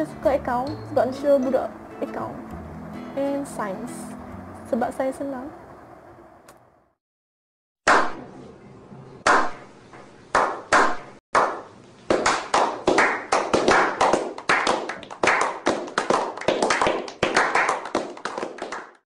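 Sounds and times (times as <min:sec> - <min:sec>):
men clapping: 0:10.4 - 0:19.0.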